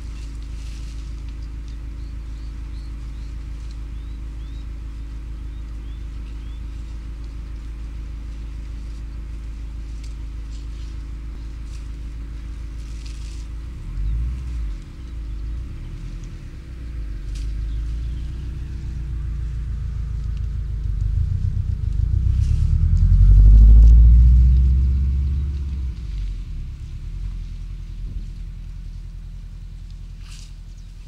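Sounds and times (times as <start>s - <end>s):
heavy low rumbling: 0.0s - 31.0s
low mechanical hum: 0.0s - 31.0s
faint bird chirps: 1.4s - 7.0s.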